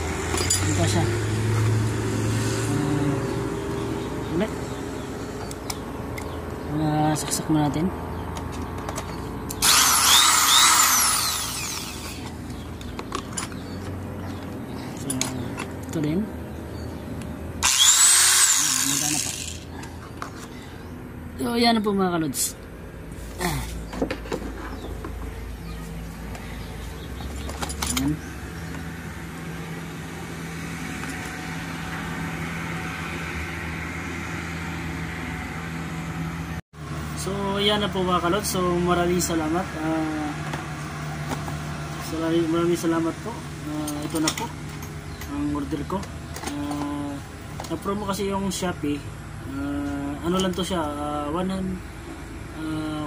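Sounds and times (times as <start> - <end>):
motor hum with rushing noise: 0.0 - 53.0
electric drill motor whining: 9.5 - 12.4, 17.6 - 19.7.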